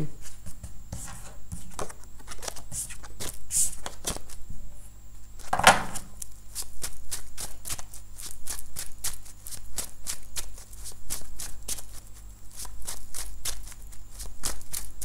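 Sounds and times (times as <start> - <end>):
cards being shuffled: 1.1 - 4.4.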